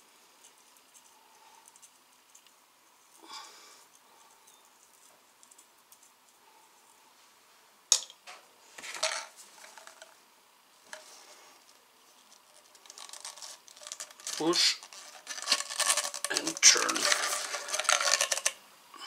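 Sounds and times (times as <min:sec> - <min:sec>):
plastic pipe fittings clicking: 0:12.8 - 0:18.6.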